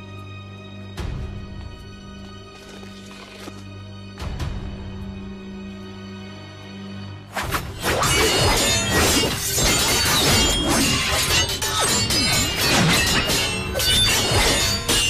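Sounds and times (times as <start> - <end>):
dramatic background music: 0.0 - 15.0
swords clashing metallic clangs: 7.8 - 15.0.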